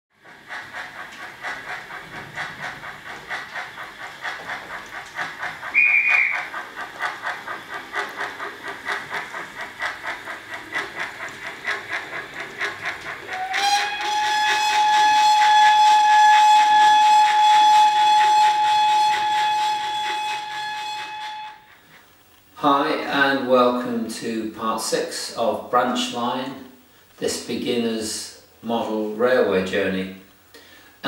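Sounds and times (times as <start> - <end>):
steam locomotive chuffing: 0.1 - 31.0
locomotive whistle blast: 5.7 - 6.5, 13.3 - 21.6
steady held tone: 5.7 - 6.5.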